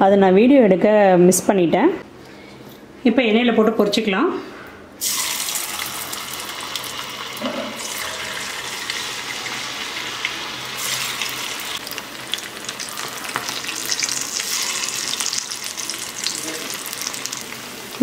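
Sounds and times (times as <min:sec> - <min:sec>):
food deep-frying in oil: 0:05.0 - 0:18.0.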